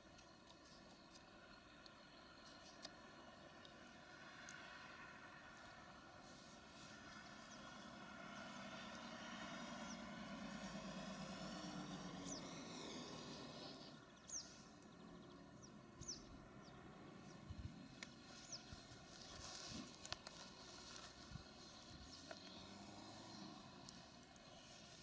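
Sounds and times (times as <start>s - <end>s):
bird chirps: 11.4s - 25.0s.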